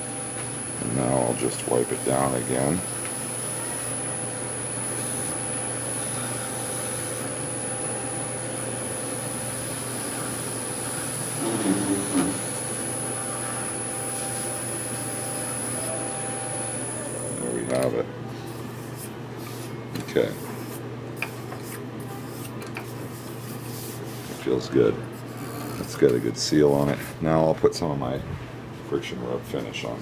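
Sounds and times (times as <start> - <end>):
wood lathe humming and whining: 0.0 - 18.0.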